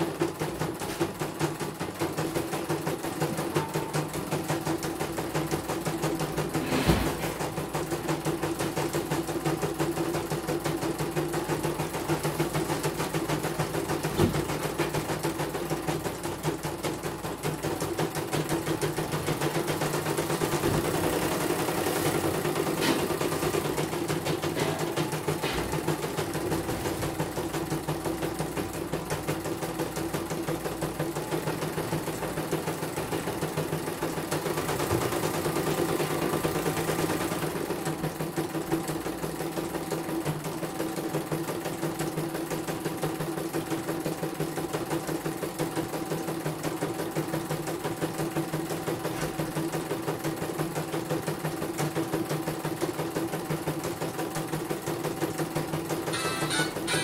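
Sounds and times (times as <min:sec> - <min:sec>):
motor hum: 0:55.5 - 0:57.0
embroidery machine needle rhythm: 0:55.6 - 0:57.0.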